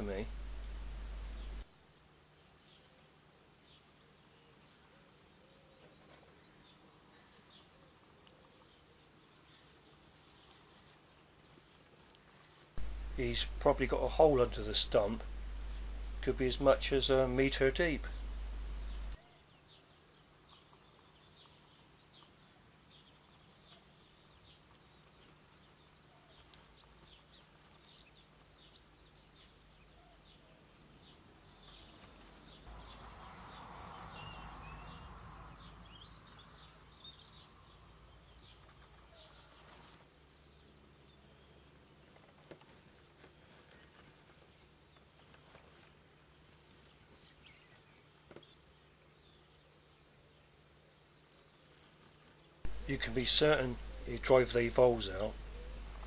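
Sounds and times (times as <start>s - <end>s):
low steady hum: 0.0s - 5.2s, 12.4s - 23.4s, 52.4s - 56.0s
soft rush of noise: 0.0s - 8.6s, 9.2s - 19.5s, 51.3s - 56.0s
bird chirps: 12.8s - 42.1s, 52.5s - 56.0s.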